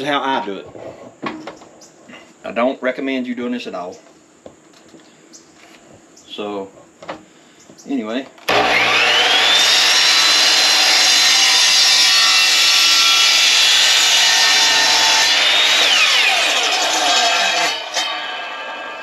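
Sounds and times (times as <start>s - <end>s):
electric chop saw whining: 8.4s - 19.0s
saw blade cutting plastic pipe: 8.5s - 19.0s.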